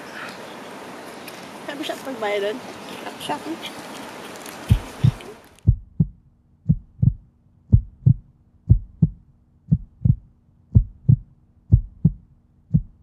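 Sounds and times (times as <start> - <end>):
heartbeat thumps: 4.7 - 13.0.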